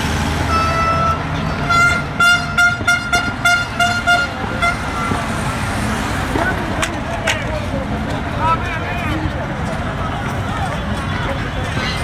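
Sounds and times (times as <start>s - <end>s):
low rumble of traffic: 0.0s - 12.0s
car horn honking: 0.5s - 5.3s.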